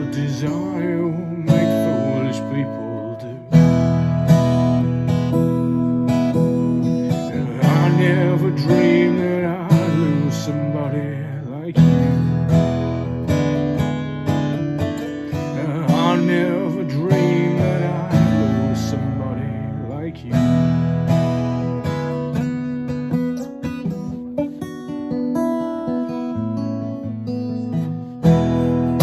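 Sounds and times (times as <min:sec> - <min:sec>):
acoustic guitar strumming and picking: 0:00.0 - 0:29.0.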